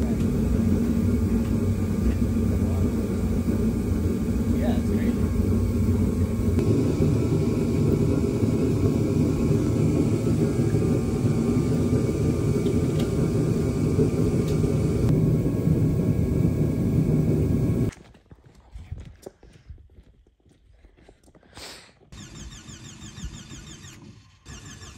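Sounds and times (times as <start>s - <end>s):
heater rumbling: 0.0s - 17.9s.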